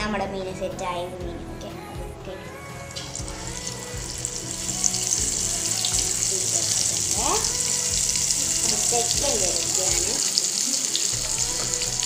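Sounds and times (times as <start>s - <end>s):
fish sizzling in hot oil: 3.0s - 12.0s.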